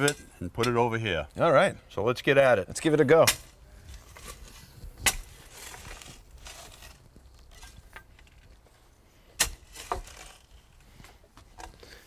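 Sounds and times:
post hole digger striking soil: 5.0s - 8.2s, 9.3s - 10.5s.

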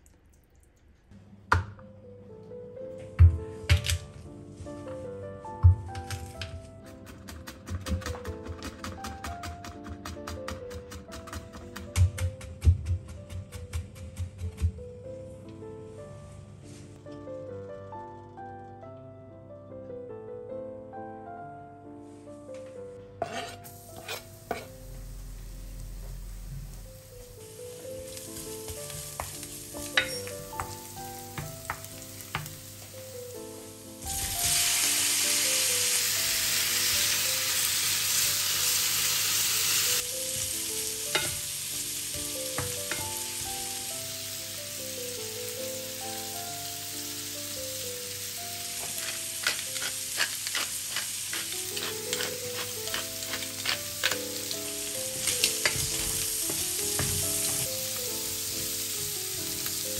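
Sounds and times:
soft background music: 0.9s - 59.9s
wooden spoon scraping a pan: 23.2s - 24.8s, 48.8s - 57.7s
shrimp sizzling in oil: 23.3s - 59.9s.

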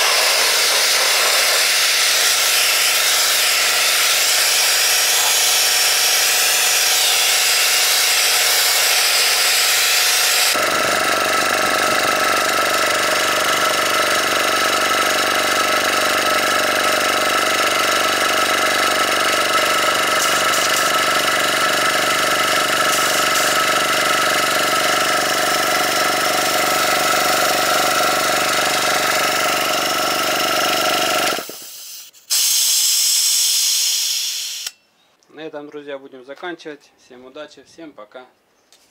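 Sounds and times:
spray gun hissing air: 0.0s - 10.6s, 19.8s - 23.8s, 31.4s - 34.7s
air compressor humming: 0.0s - 34.8s.

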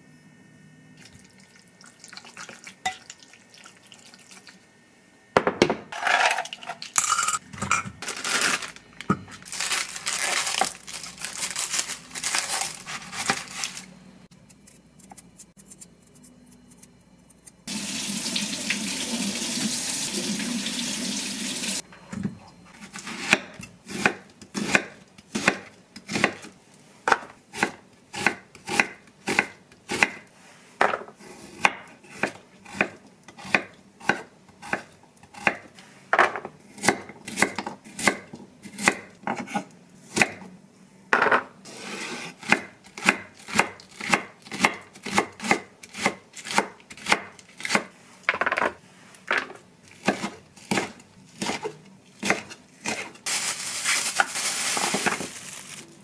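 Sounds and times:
onion skin crackling: 8.0s - 13.9s, 53.2s - 56.0s.

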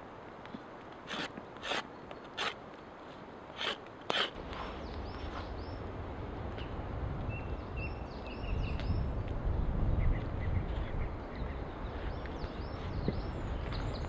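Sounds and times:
knife shaving wood: 3.5s - 4.8s
birds chirping: 4.4s - 5.9s, 10.0s - 14.0s
low wind rumble: 4.4s - 14.0s.

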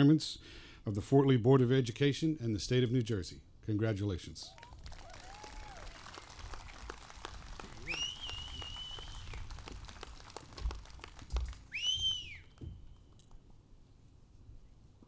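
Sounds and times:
audience whistling: 4.5s - 13.2s
faint scattered clapping: 4.5s - 13.4s.

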